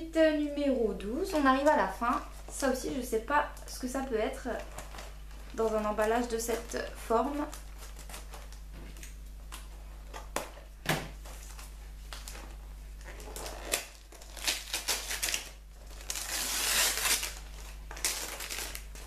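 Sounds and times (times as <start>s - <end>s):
wrapping paper crinkling and tearing: 4.4s - 10.6s, 11.2s - 19.0s.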